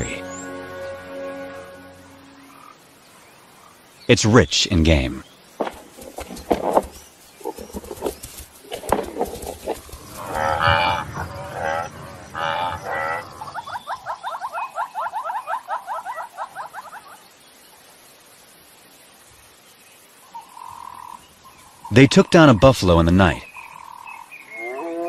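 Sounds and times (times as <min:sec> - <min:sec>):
buffalo horns clashing: 0:05.6 - 0:13.2
buffalo bellowing: 0:09.5 - 0:13.6.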